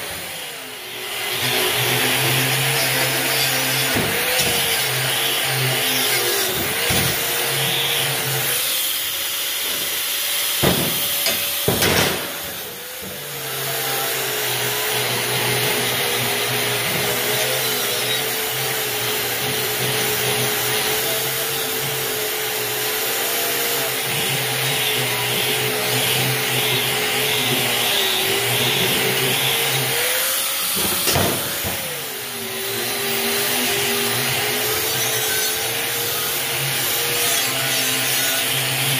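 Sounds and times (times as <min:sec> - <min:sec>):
wire wheel grinder scrubbing metal: 0:00.0 - 0:38.9
sharp knocks: 0:10.6 - 0:12.4.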